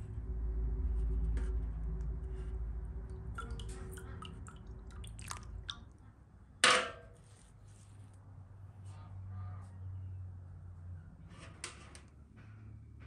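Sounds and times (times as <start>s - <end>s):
skimmer scooping wet layer: 3.1s - 6.1s.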